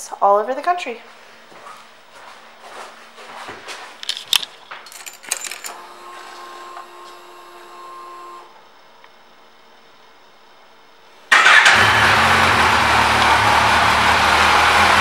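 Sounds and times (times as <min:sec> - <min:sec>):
keys jingling: 0:04.0 - 0:05.8
fuel pump whirring: 0:05.2 - 0:08.5, 0:11.3 - 0:15.0.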